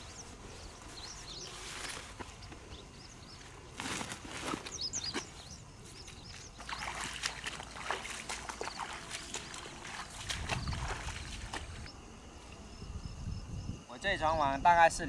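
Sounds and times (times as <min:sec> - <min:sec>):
footsteps sloshing through water: 0:01.0 - 0:11.9.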